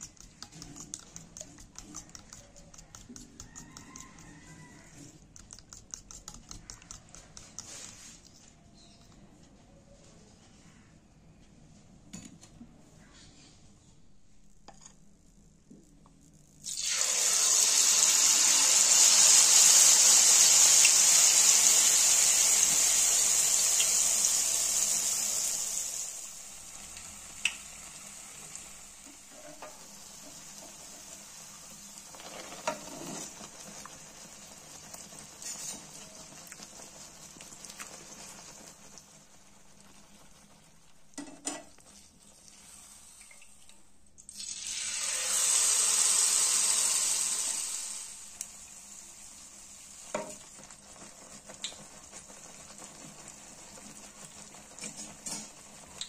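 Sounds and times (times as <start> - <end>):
batter sizzling in hot oil: 0.0 - 8.5, 16.4 - 56.0.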